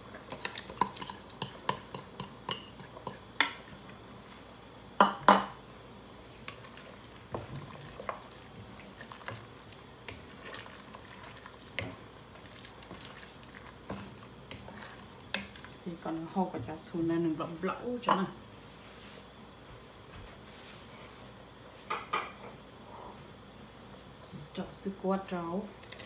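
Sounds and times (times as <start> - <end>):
wooden spatula stirring soup in pot: 0.1 - 3.6, 6.4 - 17.0.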